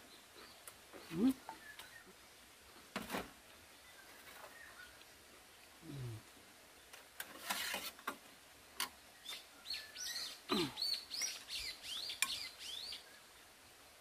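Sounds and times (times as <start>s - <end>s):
songbird singing whistled notes: 0.0s - 2.2s, 9.1s - 13.4s.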